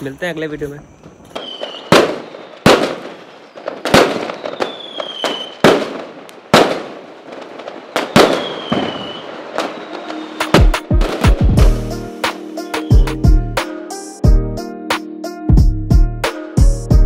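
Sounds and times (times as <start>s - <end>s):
fireworks whistles: 0.0s - 13.3s
fireworks bangs: 1.0s - 13.1s.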